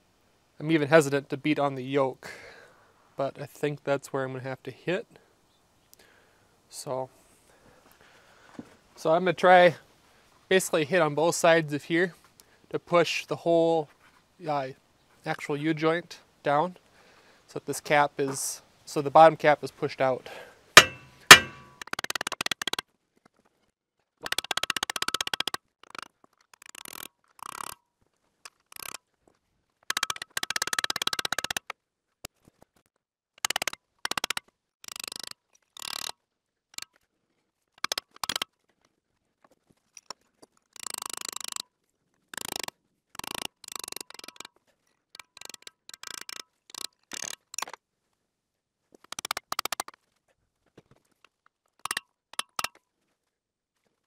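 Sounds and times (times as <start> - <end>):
metal clinking and scraping: 20.8 - 21.8.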